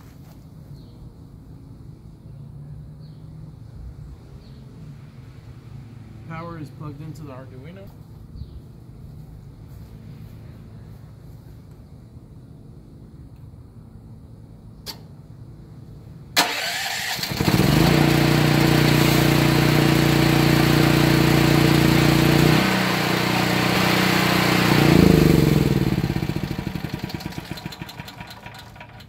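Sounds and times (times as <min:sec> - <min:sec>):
generator engine running: 0:16.4 - 0:29.0
starter clack and cranking: 0:26.9 - 0:29.0.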